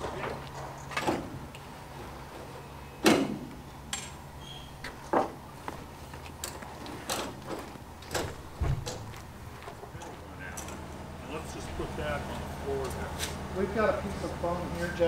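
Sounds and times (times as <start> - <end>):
steady low hum: 7.5 - 15.0.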